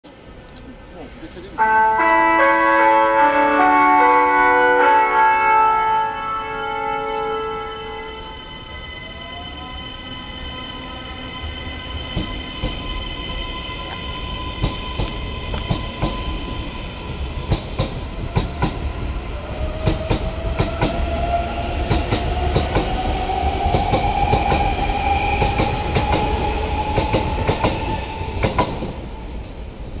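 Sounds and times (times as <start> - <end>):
train wheels clicking over rail joints: 12.1 - 16.4, 17.4 - 21.1, 25.3 - 29.0.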